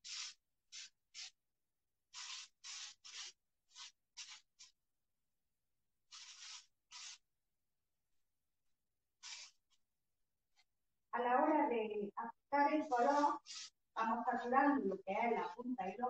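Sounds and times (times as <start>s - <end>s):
faint rustling strokes: 0.0s - 1.4s, 2.1s - 4.8s, 6.1s - 7.2s, 9.2s - 9.8s, 12.7s - 13.8s.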